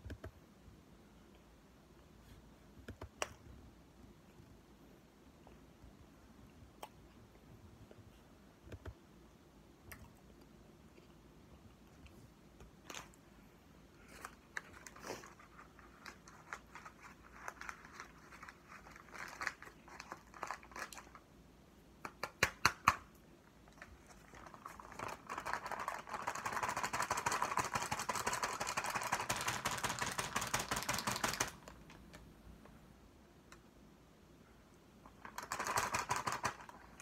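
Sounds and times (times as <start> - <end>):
plastic bag crinkling: 24.0 - 32.2, 35.2 - 37.0.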